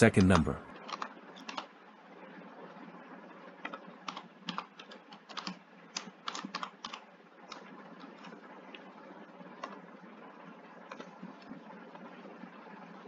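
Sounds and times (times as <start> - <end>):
typing on computer keyboard: 0.9 - 1.7, 3.6 - 8.4, 10.9 - 11.1.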